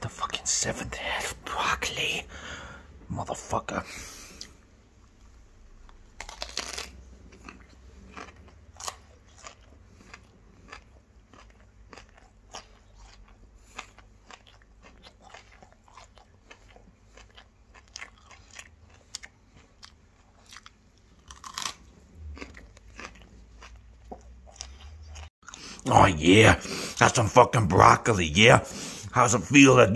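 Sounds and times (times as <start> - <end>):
broccoli crunching while chewed: 5.8 - 25.8.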